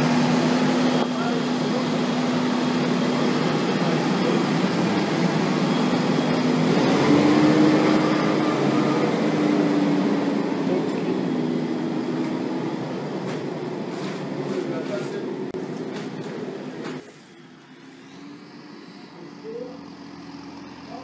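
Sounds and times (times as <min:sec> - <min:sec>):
tractor diesel engine under load: 0:00.0 - 0:21.0.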